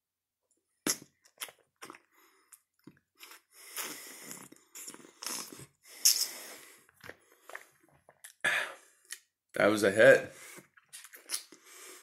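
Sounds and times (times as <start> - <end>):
breathing: 2.0 - 2.6, 3.5 - 5.2, 5.8 - 7.8, 8.4 - 9.1, 10.3 - 10.8, 11.6 - 12.0.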